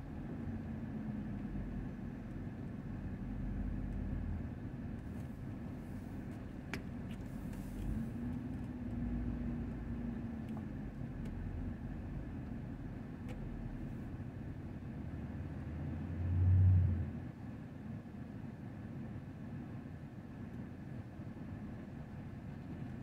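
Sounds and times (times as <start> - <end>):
traffic engines rumbling: 0.0 - 17.6.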